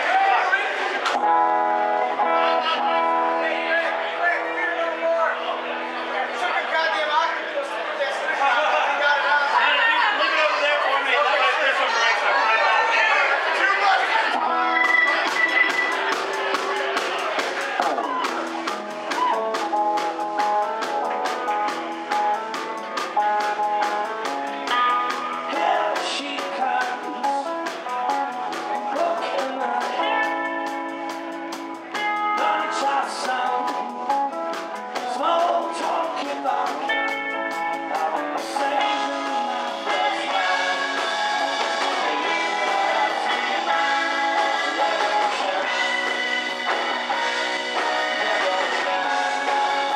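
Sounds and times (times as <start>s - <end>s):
rock band playing: 0.0s - 8.4s, 10.8s - 49.9s
man singing: 25.1s - 31.2s, 32.2s - 46.1s, 47.8s - 49.9s.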